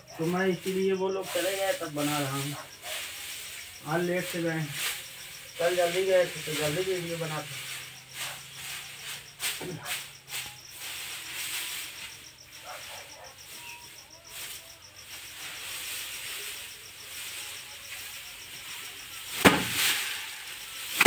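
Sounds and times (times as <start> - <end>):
dry straw rustling: 0.0 - 21.0
insects chirping: 0.0 - 21.0
straw bundle thwack: 19.4 - 20.2.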